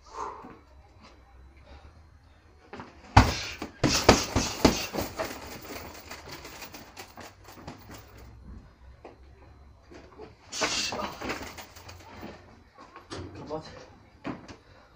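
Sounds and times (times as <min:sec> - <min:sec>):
gloves punching heavy bag: 0:03.2 - 0:08.0, 0:10.6 - 0:12.2.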